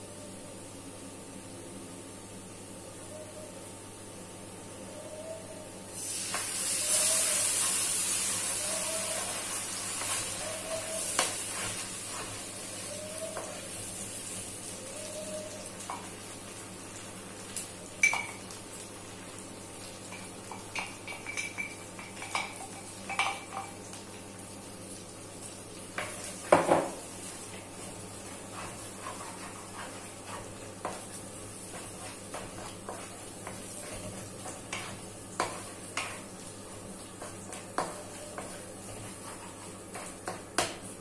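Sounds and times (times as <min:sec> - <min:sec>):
butter sizzling in a wok: 0:05.9 - 0:41.0.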